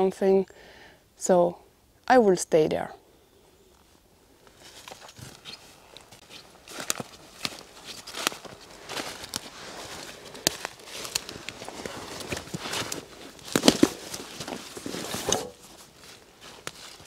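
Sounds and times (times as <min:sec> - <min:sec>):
footsteps crunching through dry leaves: 0:04.5 - 0:17.0.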